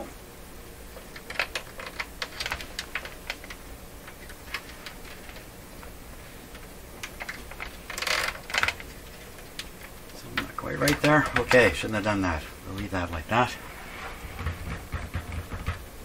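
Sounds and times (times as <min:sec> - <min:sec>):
plastic scrape: 0:13.6 - 0:15.5.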